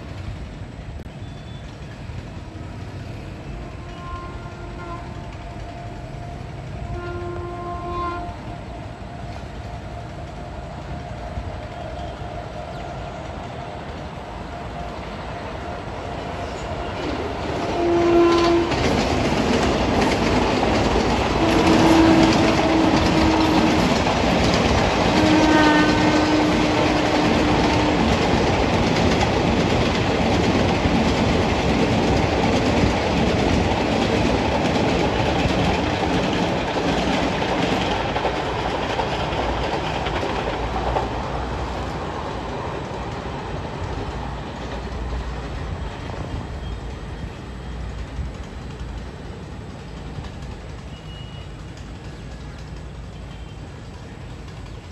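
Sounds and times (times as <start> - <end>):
train wheels rumbling on track: 0.0 - 54.9
train horn blasts: 2.5 - 19.0, 21.4 - 24.1, 24.9 - 28.1, 50.9 - 51.6.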